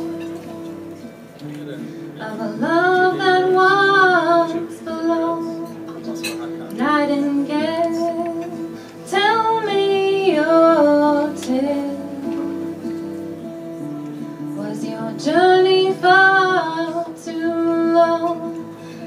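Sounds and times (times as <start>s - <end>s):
strummed acoustic guitars: 0.0s - 19.0s
woman singing: 2.2s - 5.9s, 6.7s - 12.9s, 14.4s - 18.8s.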